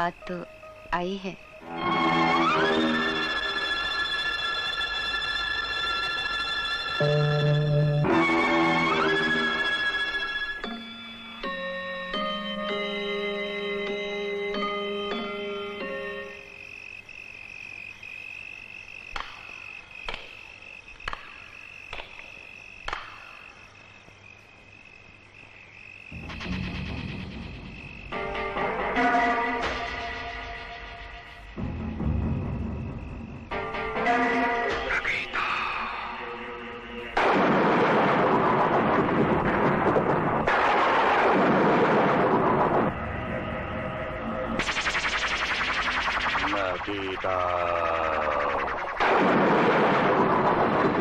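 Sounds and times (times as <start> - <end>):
crickets chirring: 0.0 - 51.0
musical chord: 1.6 - 9.9
loud hissing sound effect: 41.4 - 51.0.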